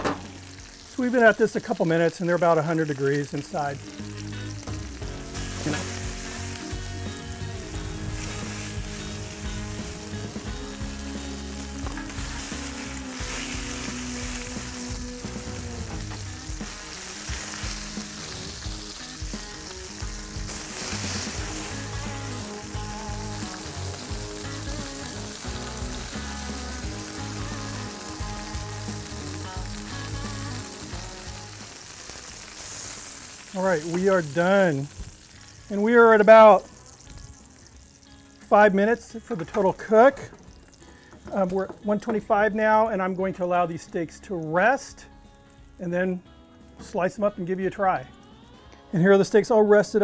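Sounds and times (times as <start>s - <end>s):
steaks sizzling on a griddle: 0.0s - 49.5s
background music with low beat: 3.3s - 32.5s
metal tongs turning steaks: 5.1s - 6.8s.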